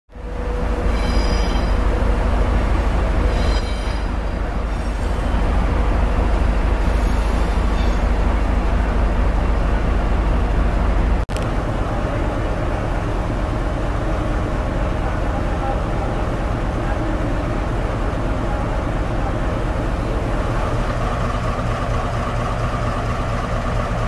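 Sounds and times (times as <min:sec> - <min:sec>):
brief high whines: 0:00.9 - 0:01.9
diesel engine idling: 0:04.1 - 0:24.0.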